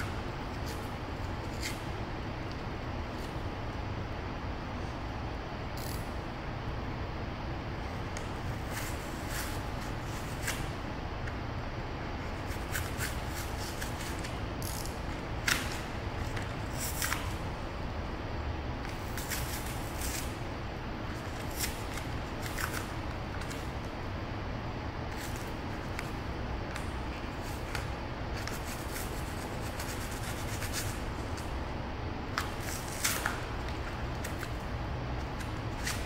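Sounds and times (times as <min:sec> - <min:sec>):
knife scraping and carving: 0:12.5 - 0:17.3.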